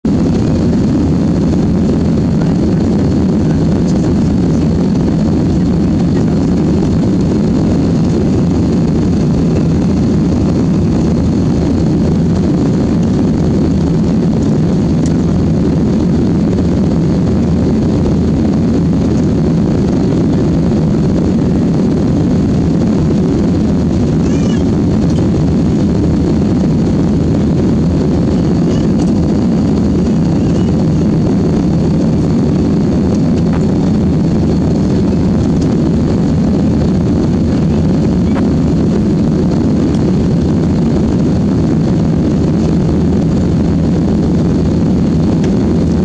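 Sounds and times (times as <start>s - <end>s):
jet cabin engine noise: 0.0s - 46.0s.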